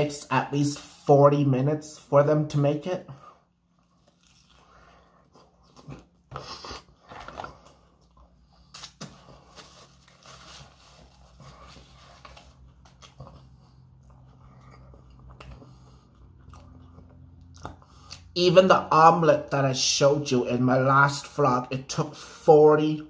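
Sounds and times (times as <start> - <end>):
person chewing food: 3.4 - 9.6, 11.2 - 18.3.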